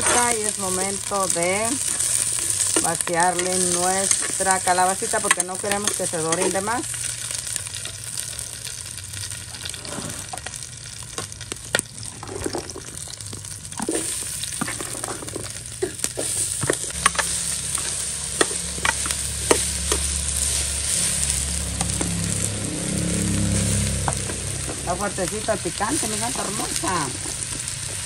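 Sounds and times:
squash sizzling in hot oil: 0:00.0 - 0:28.0.

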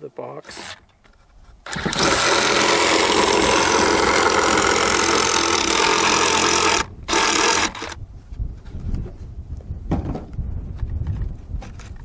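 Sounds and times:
oscillating multi-tool cutting wood: 0:00.4 - 0:00.9, 0:01.6 - 0:08.0.

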